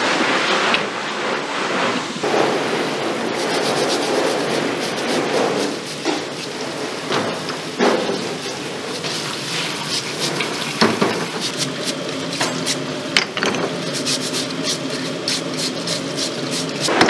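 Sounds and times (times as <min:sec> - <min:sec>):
brush scraping shells: 0:02.3 - 0:07.0, 0:08.4 - 0:12.8, 0:13.7 - 0:17.0
tap water running into sink: 0:07.2 - 0:12.6.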